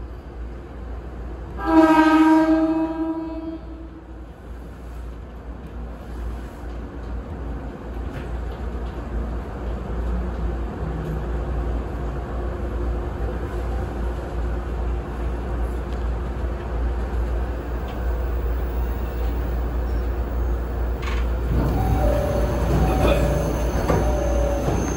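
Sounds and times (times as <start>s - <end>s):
train wheels rumbling on rails: 2.2s - 24.9s
train rattle: 4.4s - 24.9s
high wheel squeal: 21.6s - 24.9s.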